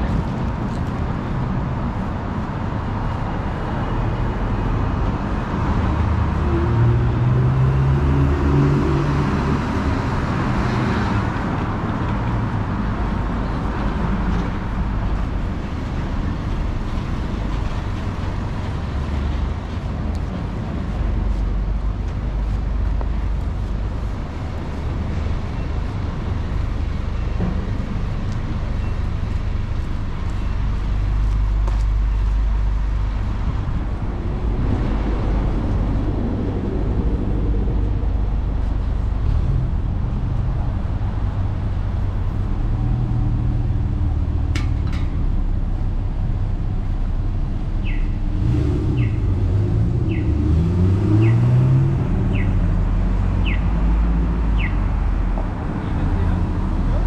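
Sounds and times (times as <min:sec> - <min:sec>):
rumble of passing cars: 0:00.0 - 0:57.0
loud vehicle engine passing: 0:03.7 - 0:12.8, 0:30.9 - 0:44.5, 0:45.2 - 0:57.0.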